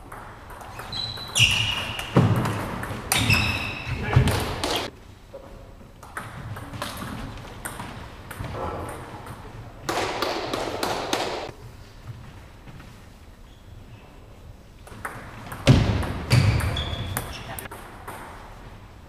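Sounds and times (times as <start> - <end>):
table tennis balls bouncing: 0.0 - 11.5, 14.8 - 18.7.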